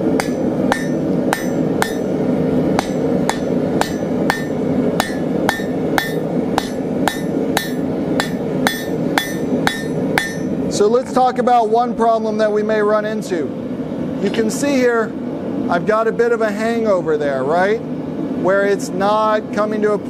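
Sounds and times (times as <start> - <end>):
hammer striking steel on anvil: 0.0 - 10.6
steady low rush: 0.0 - 18.7.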